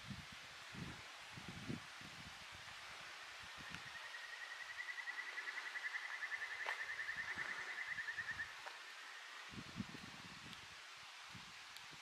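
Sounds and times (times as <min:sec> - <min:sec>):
steady outdoor hiss: 0:00.0 - 0:12.0.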